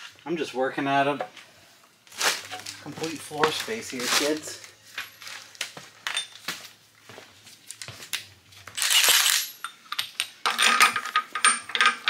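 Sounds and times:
metal tools clinking: 2.4 - 6.5, 8.8 - 12.0.

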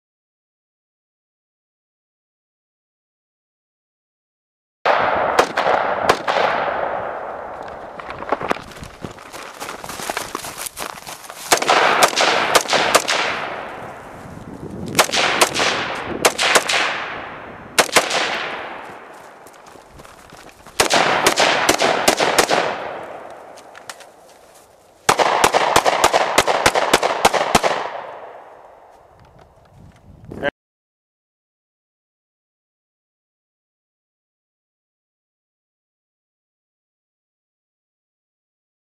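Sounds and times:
rapid gunshots with echo: 4.9 - 7.6, 11.5 - 14.1, 14.9 - 19.4, 20.8 - 24.2, 25.1 - 28.5.

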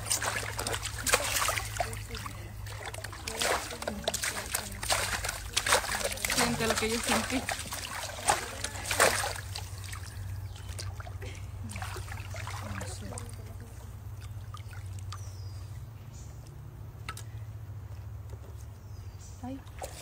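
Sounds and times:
water splashing: 0.0 - 15.4, 19.6 - 20.0
water trickling and lapping: 0.0 - 18.2, 19.4 - 20.0
steady low hum: 0.0 - 20.0.

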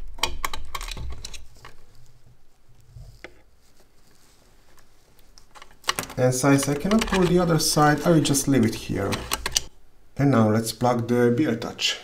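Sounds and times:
cable rustling through sleeving: 0.7 - 9.7.

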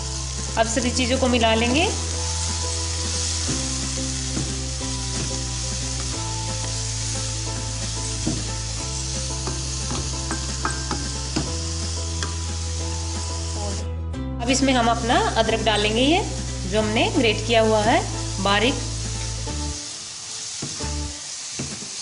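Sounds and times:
masala sizzling in oil: 0.0 - 13.8, 14.4 - 22.0
soft music with held chords: 0.0 - 21.4.

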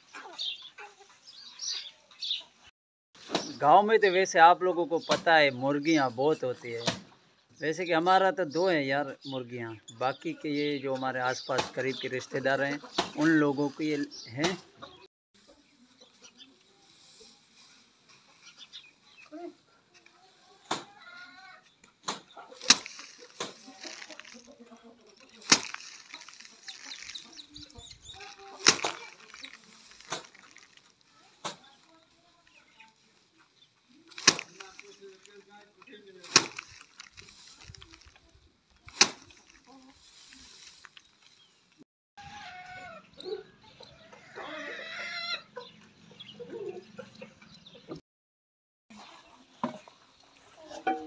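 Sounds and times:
chickens clucking: 0.0 - 2.6, 10.3 - 31.0, 42.2 - 48.0, 50.4 - 51.0
straw rustling: 10.2 - 14.6, 15.4 - 41.8
rice stalks thwacking on wood: 22.0 - 24.6, 25.3 - 31.7, 34.1 - 35.3, 36.2 - 38.2, 38.8 - 41.0.

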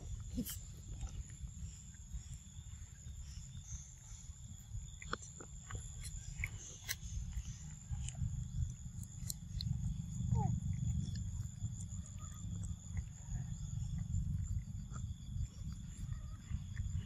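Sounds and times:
constant high-pitched whine: 0.0 - 17.0
steady low rumble: 0.0 - 17.0
wet smacking clicks of eating: 0.0 - 17.0.

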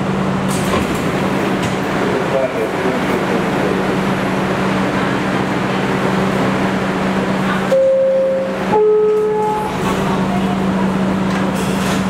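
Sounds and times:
subway car equipment humming: 0.0 - 12.0
electronic door chime tone: 7.7 - 9.7.

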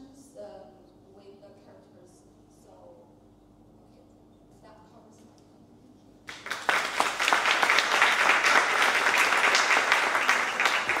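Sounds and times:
audience applause: 6.3 - 11.0.

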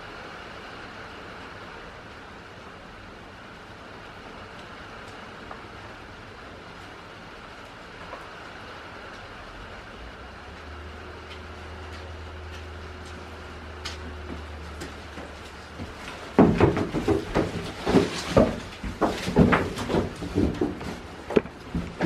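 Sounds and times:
leafy branches rustling: 11.0 - 22.0
thuds and scrapes: 14.8 - 22.0.

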